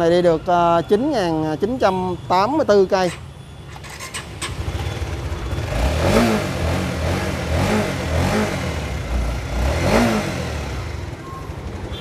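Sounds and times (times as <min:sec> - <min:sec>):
motorcycle engine revving: 0:03.1 - 0:11.8.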